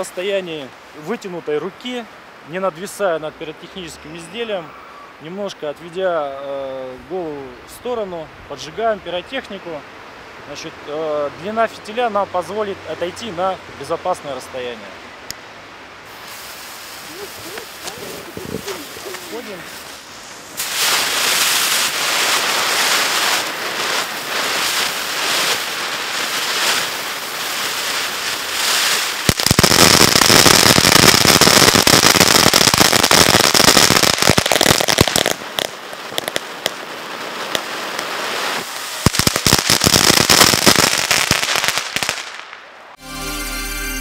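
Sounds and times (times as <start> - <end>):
firework hissing and crackling: 16.0 - 42.6
theme music: 43.0 - 44.0.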